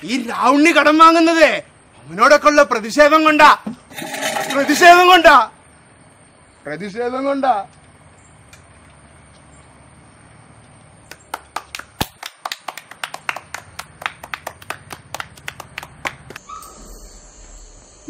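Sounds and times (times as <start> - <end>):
hands clapping: 11.1 - 16.4.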